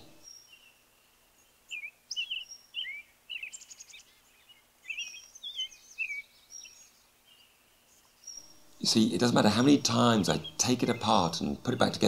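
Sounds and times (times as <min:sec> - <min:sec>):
bird trill: 0:00.0 - 0:00.8, 0:01.4 - 0:12.0
small birds chirping and whistling: 0:00.0 - 0:12.0.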